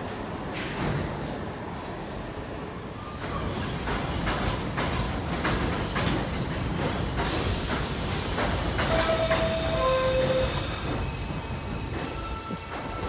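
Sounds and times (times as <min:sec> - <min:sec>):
subway train wheels clicking: 0:00.0 - 0:13.0
rushing hiss: 0:07.2 - 0:12.2.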